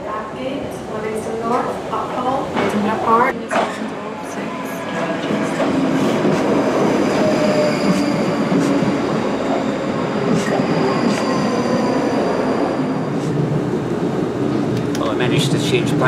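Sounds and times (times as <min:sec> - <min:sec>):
train wheels rumbling on rail: 0:04.8 - 0:16.0.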